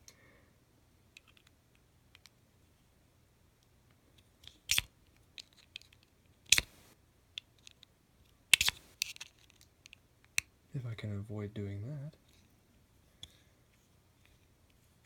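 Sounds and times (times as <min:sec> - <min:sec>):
screwdriver clicking and scraping metal: 0:04.4 - 0:06.8, 0:08.5 - 0:09.6.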